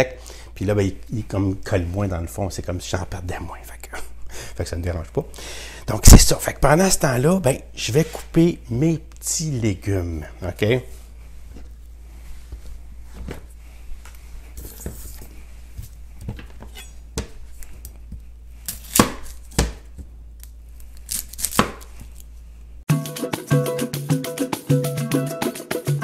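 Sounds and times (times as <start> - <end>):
music with a steady beat: 22.9 - 26.0.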